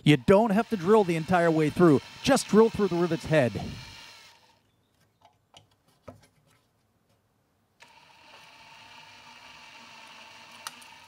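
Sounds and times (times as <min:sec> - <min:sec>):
power drill whining: 0:00.0 - 0:04.6, 0:07.8 - 0:11.0
drill bit clicks: 0:07.8 - 0:11.0.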